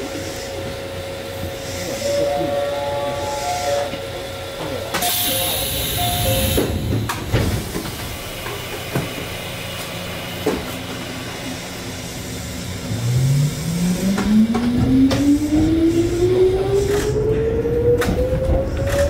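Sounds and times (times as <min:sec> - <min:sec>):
electric train motor whine rising: 0:12.8 - 0:19.0.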